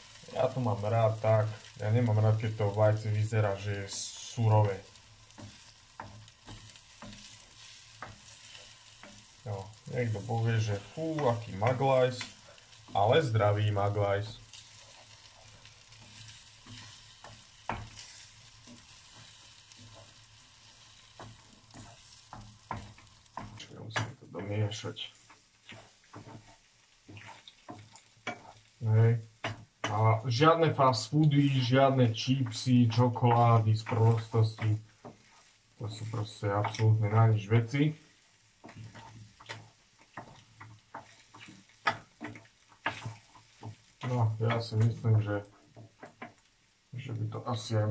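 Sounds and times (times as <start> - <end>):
eggs sizzling in a frying pan: 0.0 - 47.9
wooden spoon knocking a pan: 3.8 - 24.5, 25.2 - 28.7, 29.3 - 30.0, 33.3 - 35.4, 38.6 - 45.0, 45.6 - 46.5.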